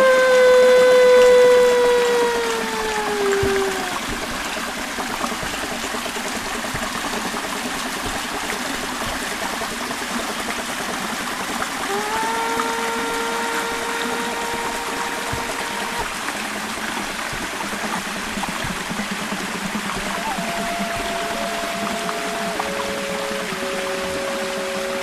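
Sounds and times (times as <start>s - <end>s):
steady pitched hum: 0.0s - 4.6s, 11.6s - 25.0s
stream trickling over rocks: 0.0s - 25.0s.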